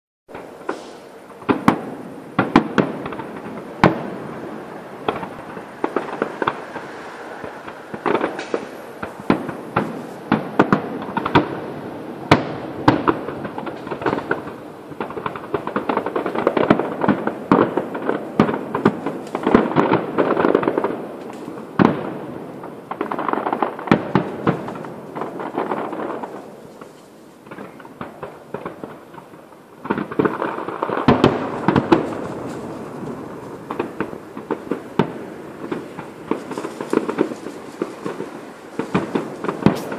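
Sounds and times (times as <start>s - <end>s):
firework shells bursting: 0.3s - 11.7s, 22.9s - 39.9s
firework crackle: 0.3s - 39.9s.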